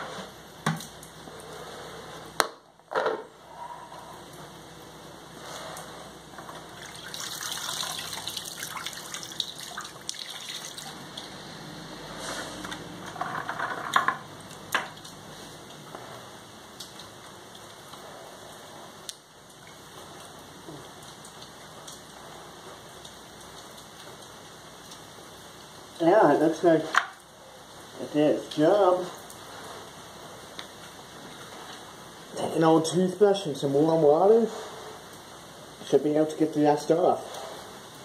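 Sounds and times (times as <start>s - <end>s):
small ticks and drips: 5.6s - 11.4s, 13.8s - 16.1s, 16.7s - 31.9s
liquid sloshing in a bucket: 5.7s - 11.3s.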